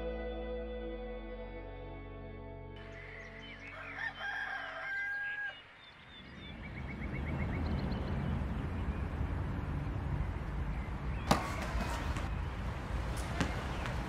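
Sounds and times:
soft ambient music: 0.0s - 5.0s
rooster crowing: 3.6s - 5.6s.

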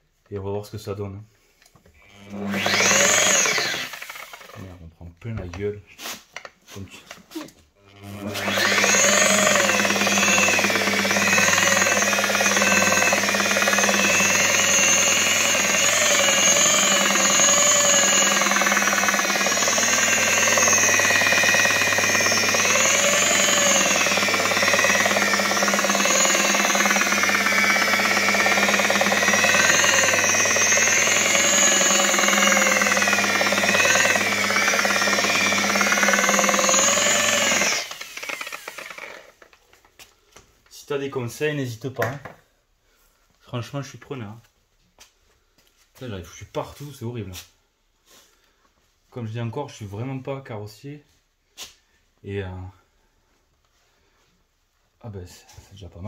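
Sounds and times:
electric polisher whining: 2.0s - 4.6s, 7.8s - 39.4s.

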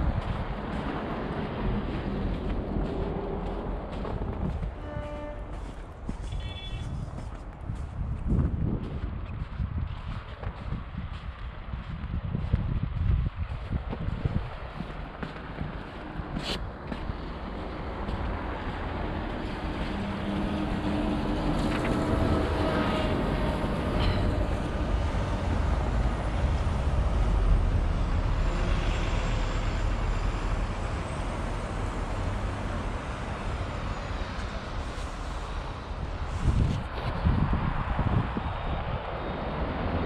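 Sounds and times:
low traffic rumble: 0.0s - 40.0s.

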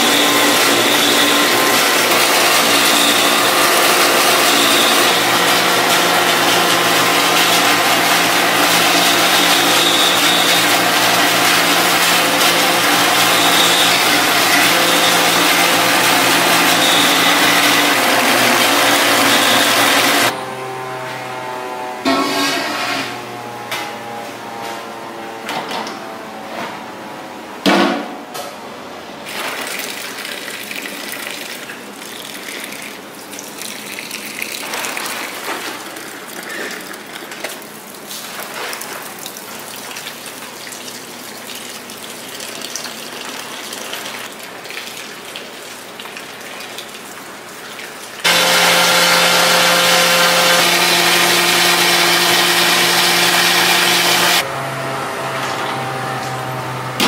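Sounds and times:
liquid pouring into metal pot: 29.3s - 37.8s
water running onto ground beans: 29.3s - 48.2s.

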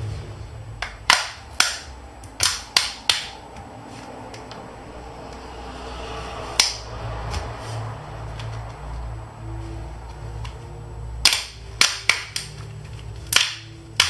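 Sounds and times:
plastic clips snapping: 0.8s - 3.7s, 11.2s - 14.0s.

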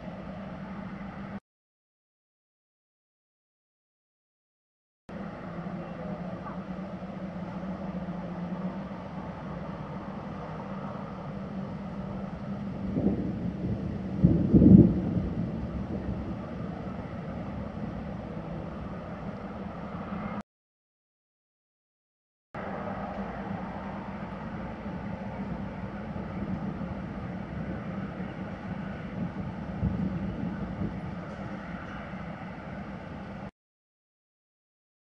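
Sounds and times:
steady low hum: 5.1s - 20.4s, 22.6s - 33.5s
distant thunder rumbling: 12.1s - 19.2s, 24.6s - 33.0s.

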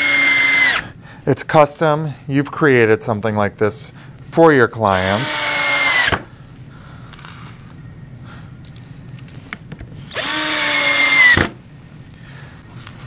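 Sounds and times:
cordless drill motor whine: 0.0s - 0.9s, 5.1s - 6.2s, 10.1s - 11.6s.

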